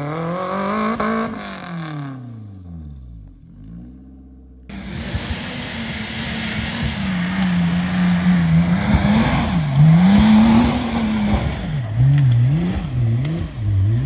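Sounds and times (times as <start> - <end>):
off-road vehicle engine revving: 0.0 - 14.0
steady rushing noise: 4.7 - 12.8.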